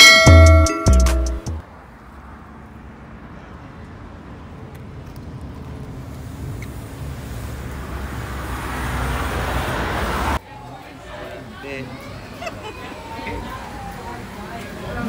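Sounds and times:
road traffic noise: 0.0 - 15.0
vehicle tyre and engine noise: 1.6 - 15.0.

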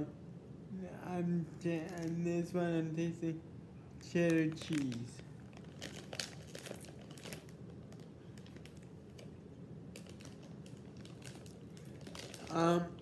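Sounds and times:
snack bag crinkling: 1.8 - 2.2, 4.0 - 12.8.

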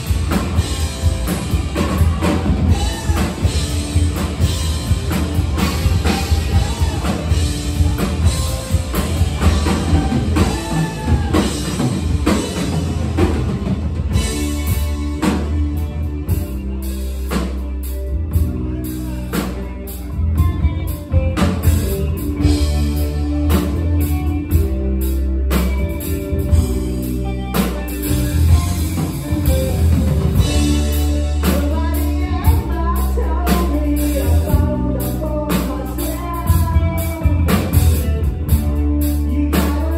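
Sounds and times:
bass guitar: 0.0 - 39.9
drum kit: 0.0 - 39.9
electric guitar: 0.0 - 39.9
lead vocal singing: 1.8 - 4.0, 5.4 - 12.4, 31.4 - 37.7, 39.2 - 39.9.

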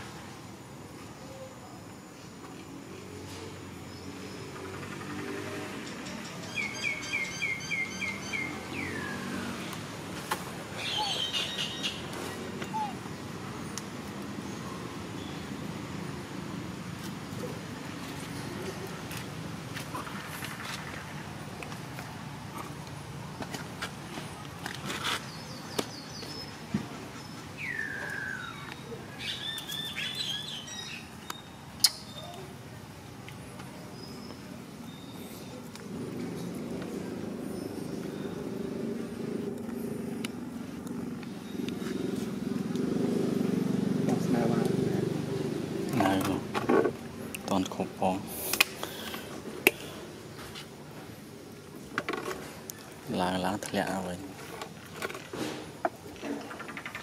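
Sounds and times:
birds chirping: 3.5 - 16.2, 19.8 - 54.4
bird chirping: 3.8 - 9.8, 10.7 - 15.7, 27.2 - 32.5.

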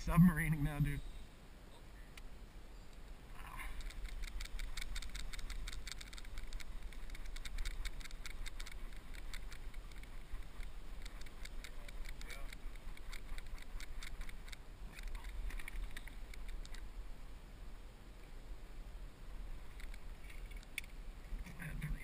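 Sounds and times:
fishing reel clicking: 3.8 - 14.6.

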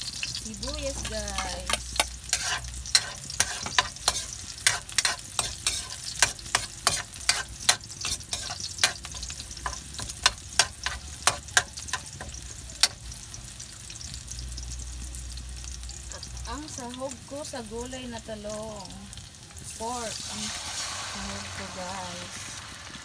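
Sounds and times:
oil sizzling: 0.0 - 23.0
metal ladle scraping a wok: 1.1 - 13.0.

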